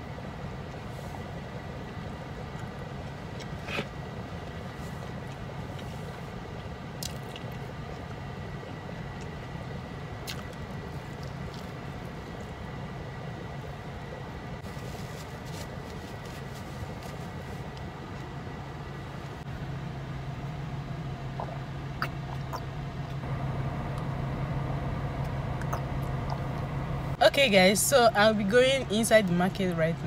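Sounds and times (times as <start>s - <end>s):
low hum inside a car: 0.0s - 30.0s
person drinking from bottle: 21.4s - 23.2s
chewing clicks: 25.6s - 26.4s.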